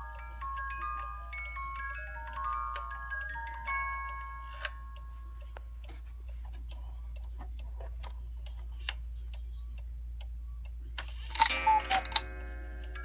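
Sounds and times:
music box playing: 0.0 - 8.1, 10.6 - 13.0
clock ticking: 0.0 - 13.0
clock works clattering: 11.0 - 13.0.

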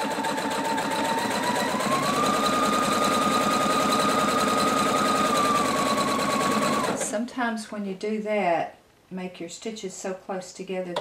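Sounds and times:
sewing machine motor whine: 0.0 - 7.1.

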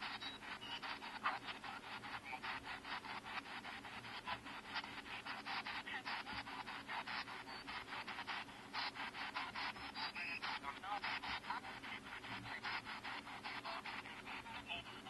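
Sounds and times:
radio static chopping: 0.0 - 15.0.

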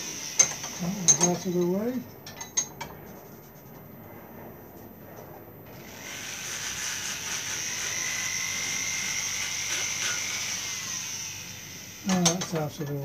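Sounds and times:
rotary carving tool whining: 0.0 - 1.5, 5.7 - 13.0.

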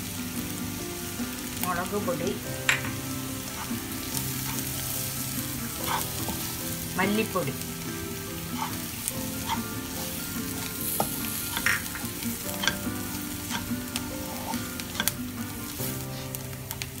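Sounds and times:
onions sizzling in oil: 0.0 - 17.0
spatula tapping and scraping pan: 2.6 - 6.7, 8.5 - 16.9.

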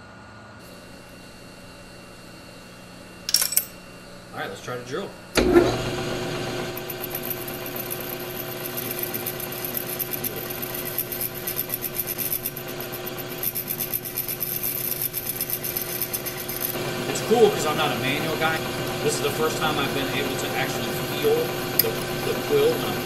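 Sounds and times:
lathe humming and whining: 3.8 - 23.0
drill cutting metal: 5.4 - 23.0.

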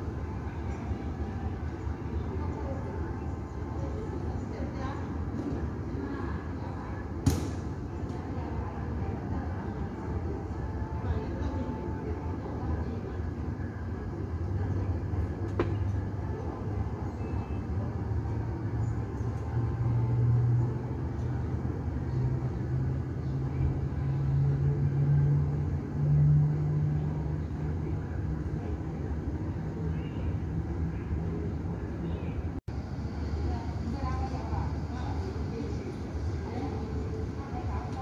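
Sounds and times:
muffled aircraft engine rumble: 0.0 - 38.0.

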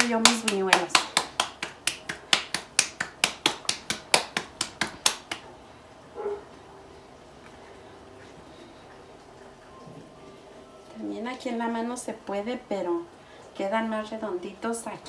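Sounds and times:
dough slapped between palms: 0.0 - 5.5.

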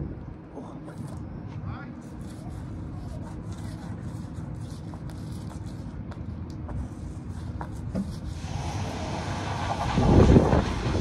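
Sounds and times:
wind on microphone: 0.0 - 0.3, 8.5 - 11.0.

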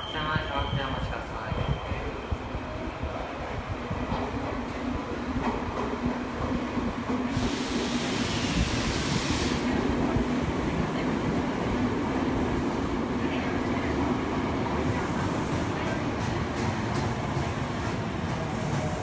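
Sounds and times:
subway train rumble: 0.0 - 19.0
hiss: 7.3 - 9.8, 18.3 - 19.0.

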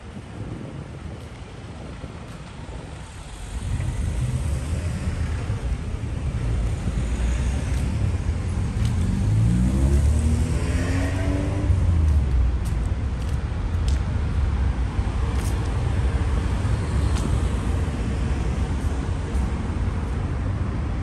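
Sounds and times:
car engines rumbling: 0.0 - 21.0
car engine accelerating: 7.1 - 12.1.

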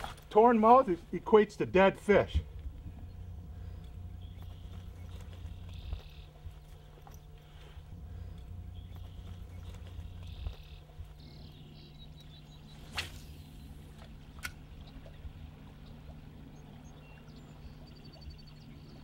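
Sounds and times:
steady low hum: 0.0 - 19.0
fishing rod cast swish: 12.8 - 13.6.

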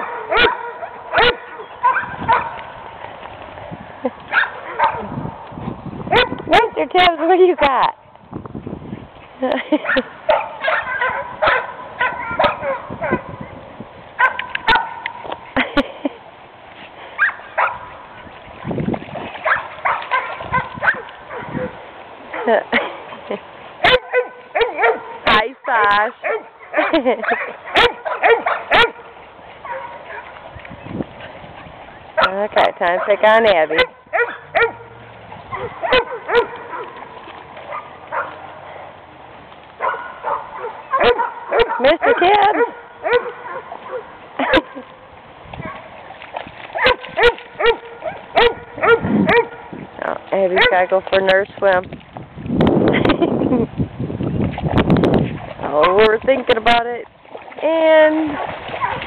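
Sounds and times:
dogs barking and yipping: 0.0 - 2.7, 4.3 - 5.2, 6.1 - 7.8, 9.6 - 13.6, 14.2 - 16.0, 17.0 - 18.3, 19.4 - 30.6, 31.2 - 39.0, 39.8 - 44.9, 45.6 - 46.1, 46.7 - 49.8, 50.4 - 50.9, 58.3 - 59.0.

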